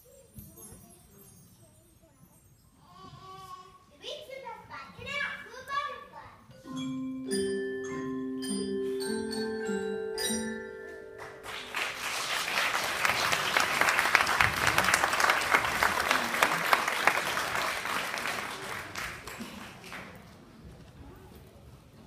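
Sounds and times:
xylophone notes ringing: 0:06.5 - 0:11.8
audience applause: 0:11.2 - 0:20.3.

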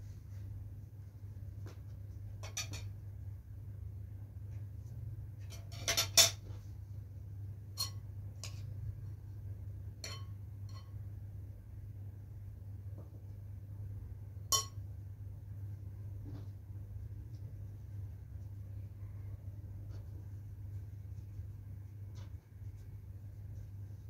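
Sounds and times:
kitchenware clinking: 0:05.5 - 0:06.4, 0:10.0 - 0:11.0, 0:14.5 - 0:14.8.

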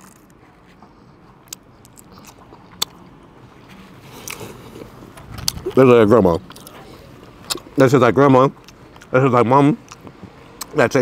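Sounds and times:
person biting and chewing: 0:00.0 - 0:03.2, 0:04.1 - 0:05.8, 0:06.4 - 0:07.7, 0:09.8 - 0:10.8.

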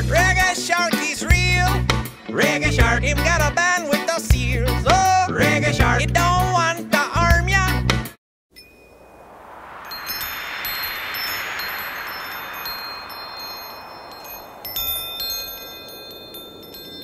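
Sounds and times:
wind chimes ringing: 0:08.5 - 0:17.0
whoosh: 0:08.9 - 0:16.8.

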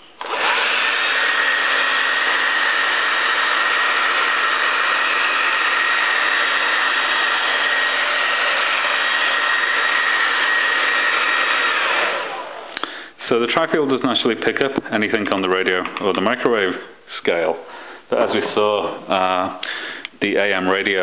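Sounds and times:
hair dryer running: 0:00.2 - 0:12.9.

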